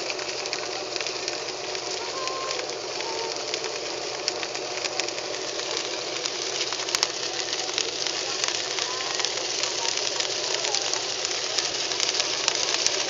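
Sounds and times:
small crackles: 0.0s - 13.0s.

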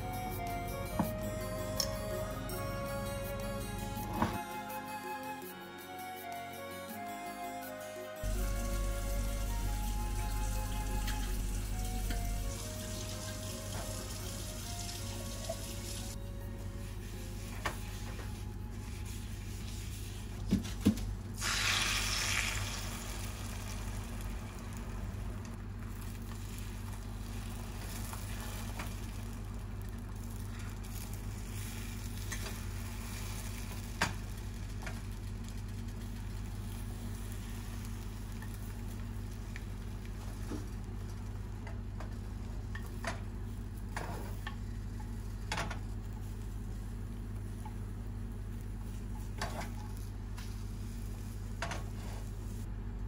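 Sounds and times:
egg sizzling in a pan: 8.3s - 16.2s, 21.3s - 52.6s.

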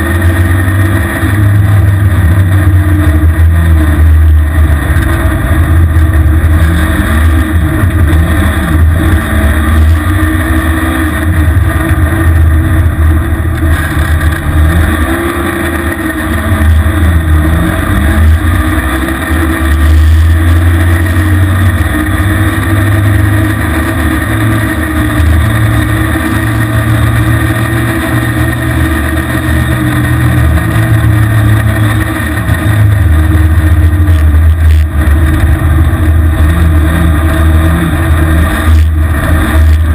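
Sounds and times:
snow vehicle engine revving: 0.0s - 39.9s.

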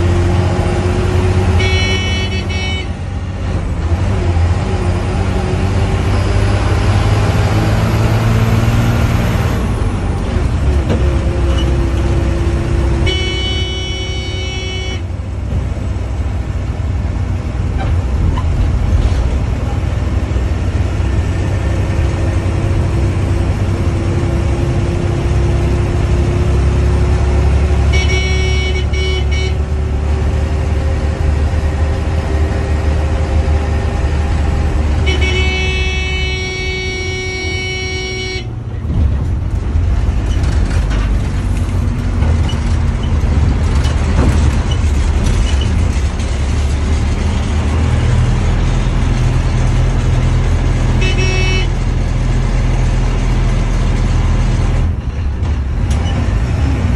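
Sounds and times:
diesel bus engine running: 0.0s - 56.9s
bus horn blasts: 1.4s - 3.1s, 12.9s - 15.2s, 27.6s - 29.8s, 34.9s - 38.6s, 50.8s - 51.9s.

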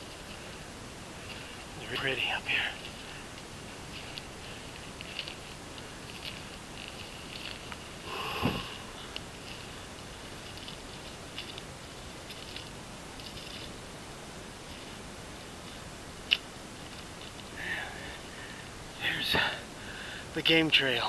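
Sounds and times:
footsteps through dry grass: 0.0s - 19.0s
person breathing: 0.3s - 1.8s, 2.5s - 6.6s, 8.0s - 9.9s, 17.6s - 20.3s.

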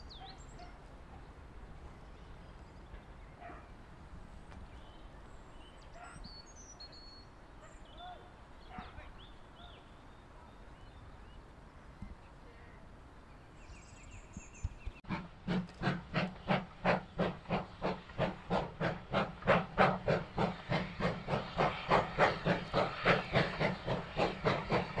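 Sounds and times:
steam locomotive exhaust beats: 15.0s - 25.0s.

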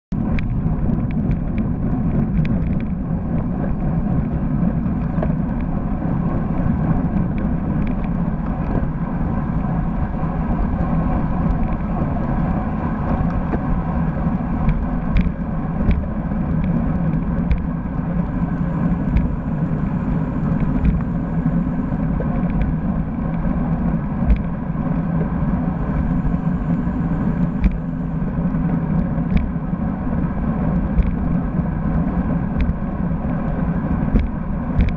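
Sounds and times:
road and tyre noise: 0.0s - 34.9s
wind rumbling on microphone: 0.1s - 34.9s
sharp clicks and knocks: 0.3s - 4.3s, 14.6s - 17.7s, 19.1s - 19.4s, 20.6s - 21.1s, 24.2s - 24.6s, 27.6s - 27.8s, 29.3s - 29.6s, 30.9s - 31.3s, 32.6s - 32.8s, 34.1s - 34.9s.

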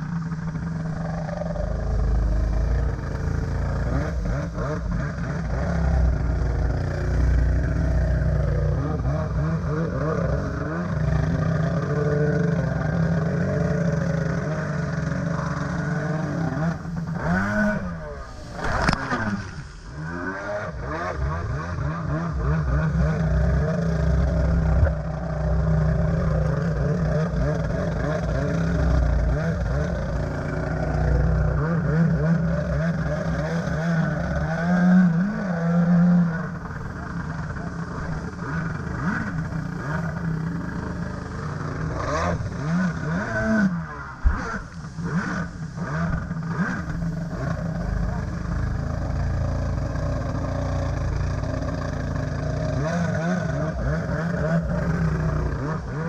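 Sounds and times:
jet ski engine revving: 0.0s - 56.0s
water rushing: 14.8s - 21.6s.

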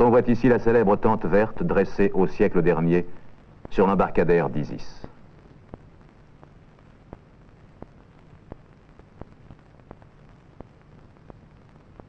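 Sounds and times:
low hum and hiss: 0.0s - 12.0s
film clicks and pops: 5.1s - 12.0s.

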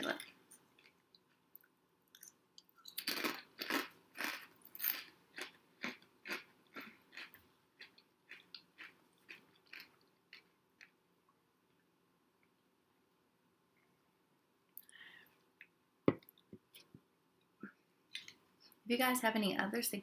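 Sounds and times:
crunching and chewing chips: 2.9s - 11.0s.

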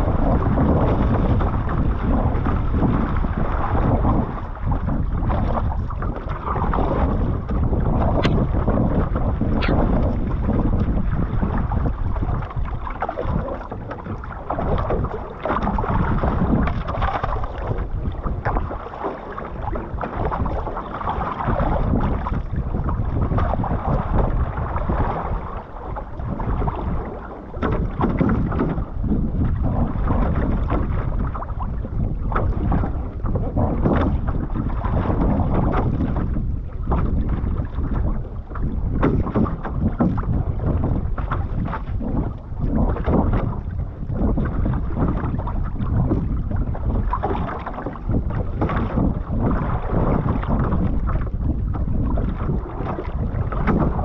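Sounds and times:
water lapping against hull: 0.0s - 54.0s
wind buffeting microphone: 0.0s - 54.0s.

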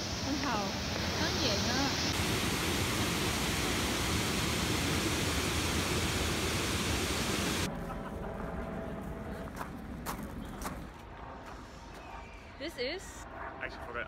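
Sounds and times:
water rushing over weir: 0.0s - 7.7s.

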